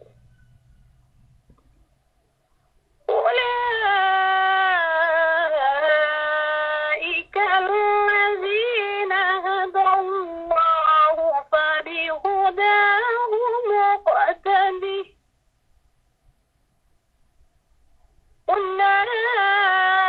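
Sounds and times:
person reciting melodically: 3.1 - 15.2, 18.5 - 20.0.

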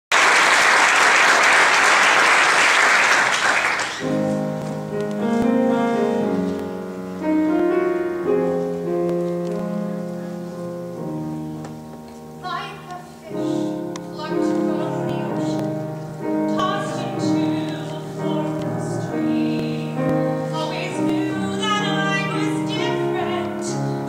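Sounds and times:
audience applauding: 0.1 - 4.2
piano chords: 0.2 - 24.0.

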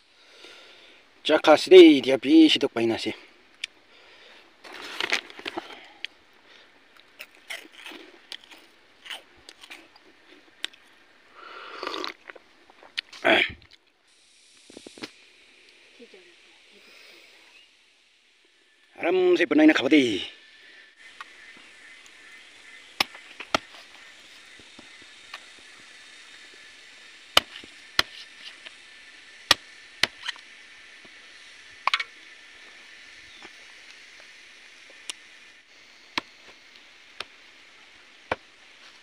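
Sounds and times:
machete chopping on wooden block: 27.4 - 28.2, 29.5 - 30.2.

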